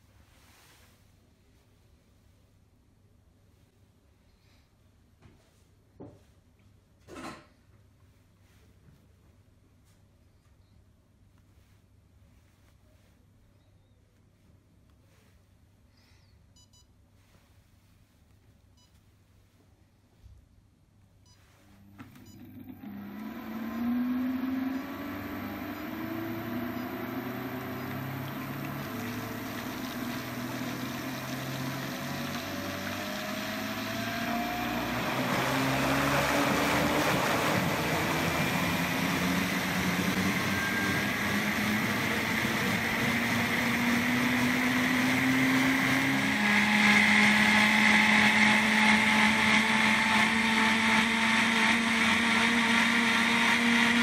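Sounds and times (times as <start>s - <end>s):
blender motor running: 21.8s - 54.0s.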